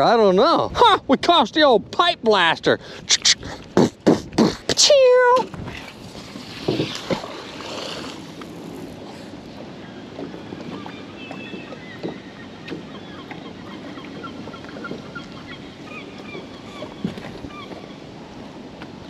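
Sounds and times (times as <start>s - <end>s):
water: 0.0s - 19.0s
wind: 0.0s - 19.0s
birds calling: 9.0s - 18.2s.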